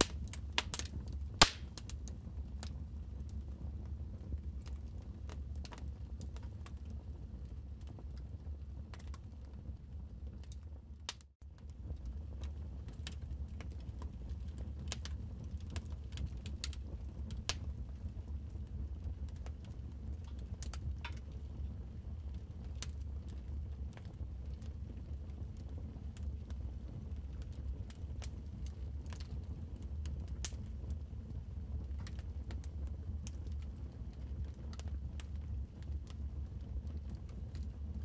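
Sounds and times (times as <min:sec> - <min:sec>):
wood fire crackling: 0:00.0 - 0:38.0.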